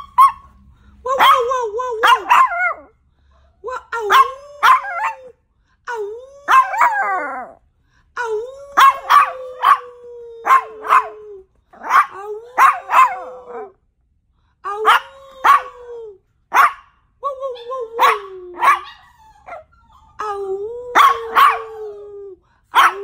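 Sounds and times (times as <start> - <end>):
dog yipping and barking: 0.0 - 0.6, 1.2 - 2.9, 4.1 - 5.2, 6.5 - 7.5, 8.8 - 11.2, 11.8 - 13.3, 14.8 - 15.8, 16.5 - 16.9, 17.6 - 20.2, 20.9 - 22.0, 22.8 - 23.0
dog howling: 8.6 - 13.8, 14.8 - 16.0, 17.5 - 23.0.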